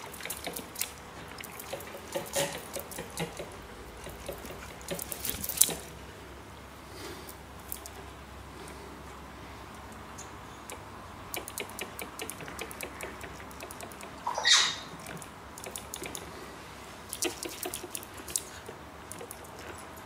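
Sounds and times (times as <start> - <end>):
parrot beak clicking on plastic: 10.7 - 14.2, 15.0 - 16.3, 17.1 - 19.8.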